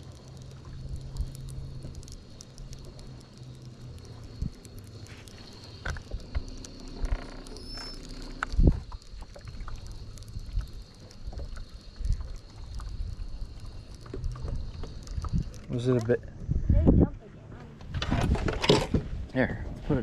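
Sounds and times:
light clicks: 0:00.0 - 0:16.2
low hum with high whine: 0:00.0 - 0:20.0
fishing reel being cranked: 0:05.4 - 0:16.2.

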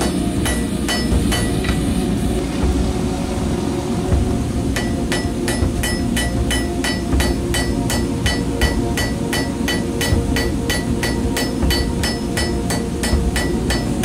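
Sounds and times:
hammer striking steel on anvil: 0:00.0 - 0:01.8, 0:04.8 - 0:14.0.

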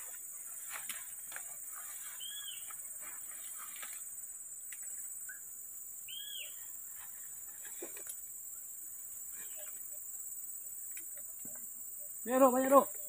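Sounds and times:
leaves rustling and crackling: 0:00.0 - 0:05.0
high insect buzz: 0:00.0 - 0:13.0
faint chirp: 0:01.6 - 0:04.0, 0:04.6 - 0:13.0
whistled animal calls: 0:02.2 - 0:02.7, 0:06.1 - 0:06.6.

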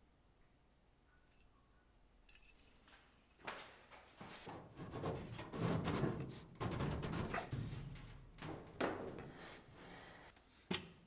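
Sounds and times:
sheet metal scraping and rattling: 0:04.4 - 0:09.5.

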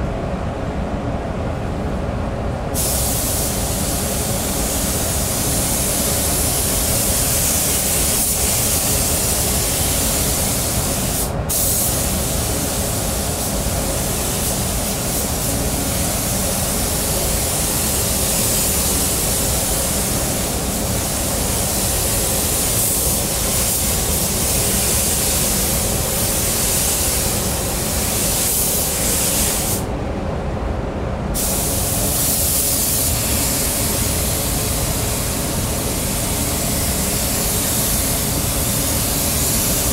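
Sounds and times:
paint spray gun hissing: 0:02.8 - 0:29.9, 0:31.4 - 0:39.9.

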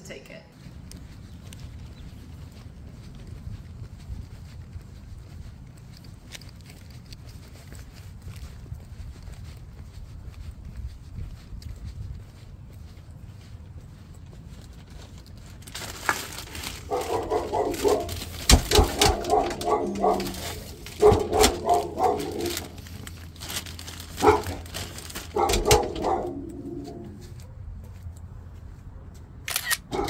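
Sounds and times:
dog barking: 0:16.8 - 0:22.8, 0:24.2 - 0:24.7, 0:25.3 - 0:28.0.

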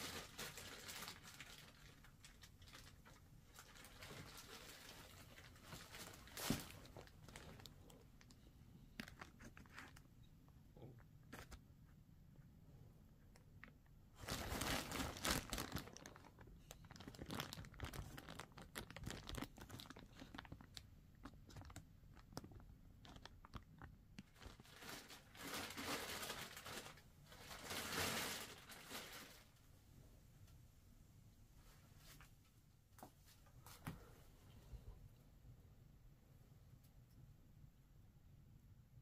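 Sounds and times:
crinkling and crunching rustles: 0:00.0 - 0:12.0, 0:13.3 - 0:29.7.

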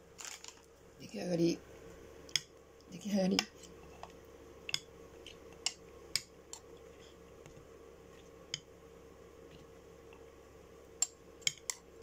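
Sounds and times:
glass bowl clicking and tapping: 0:11.0 - 0:11.8.

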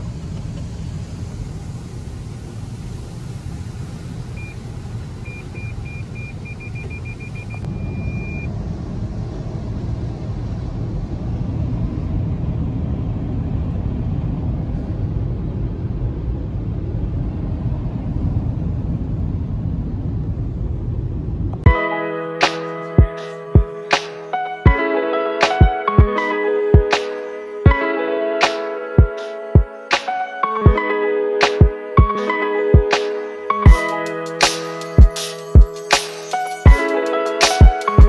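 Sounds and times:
car wash water spray and brushes: 0:00.0 - 0:07.3
electronic beeper: 0:05.3 - 0:08.5.

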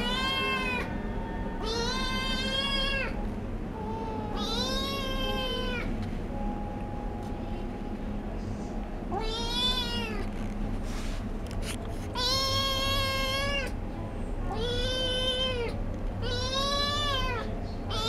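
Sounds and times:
kitten meowing: 0:01.6 - 0:03.2, 0:03.8 - 0:05.9, 0:09.1 - 0:10.3, 0:12.2 - 0:13.8, 0:14.5 - 0:18.0.

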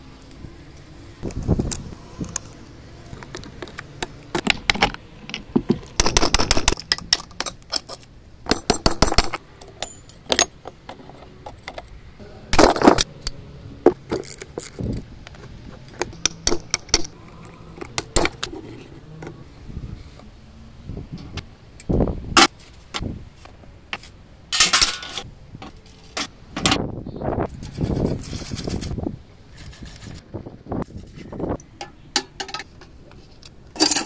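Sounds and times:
metal engine parts clattering: 0:04.4 - 0:11.9, 0:17.9 - 0:19.0, 0:24.5 - 0:25.2, 0:31.8 - 0:33.0, 0:33.7 - 0:34.0.

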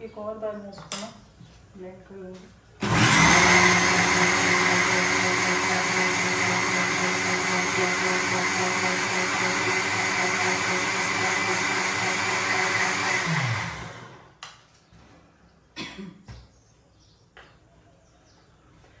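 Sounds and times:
mixer grinder motor running: 0:02.8 - 0:14.4.

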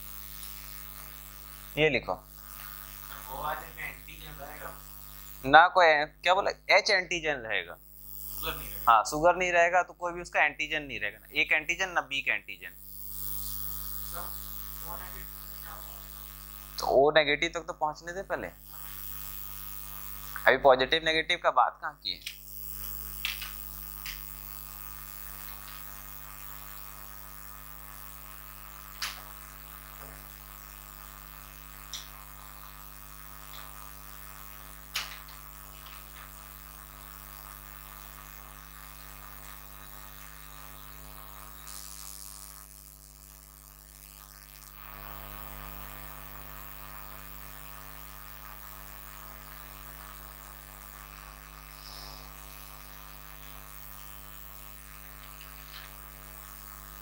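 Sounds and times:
electrical mains hum: 0:00.0 - 0:57.0
short clicks: 0:23.2 - 0:24.3.

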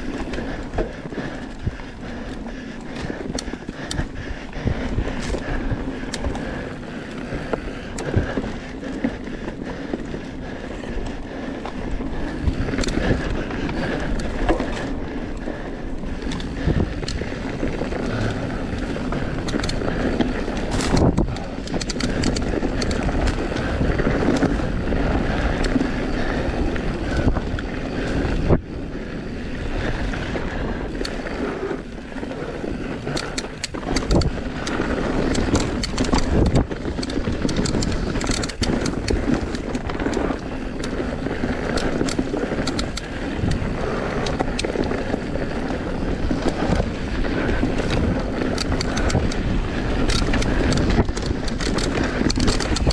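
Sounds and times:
bike rattling and knocking: 0:00.0 - 0:52.9
wind noise on microphone: 0:00.0 - 0:52.9
tyres rolling over dirt and leaves: 0:10.7 - 0:52.9.

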